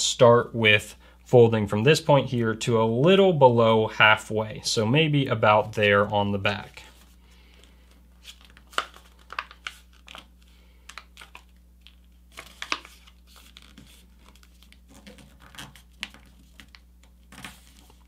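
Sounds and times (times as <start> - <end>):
paper rustling and crinkling: 6.8 - 18.0.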